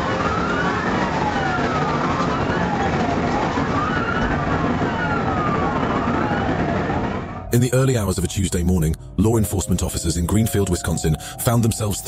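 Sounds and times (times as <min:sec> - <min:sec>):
police siren wailing: 0:00.0 - 0:07.5.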